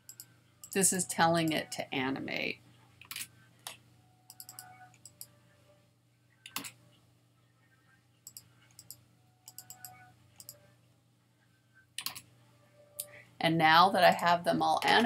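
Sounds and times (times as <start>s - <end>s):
faint steady hum: 0.0s - 15.0s
mouse and keyboard clicks: 4.3s - 5.3s, 8.3s - 10.6s, 12.0s - 12.2s.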